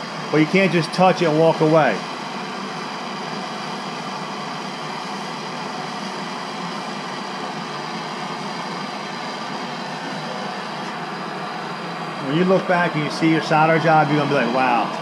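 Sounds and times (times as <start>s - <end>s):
gas torch hissing: 0.0s - 15.0s.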